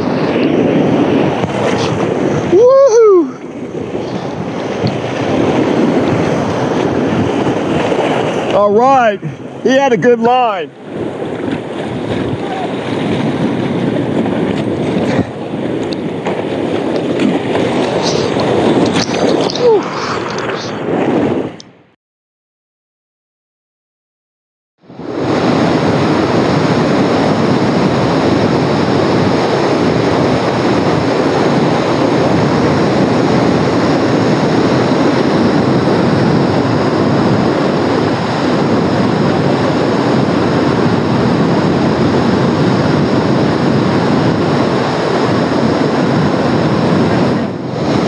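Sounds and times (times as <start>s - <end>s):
whitewater rushing over rocks: 0.0s - 20.7s.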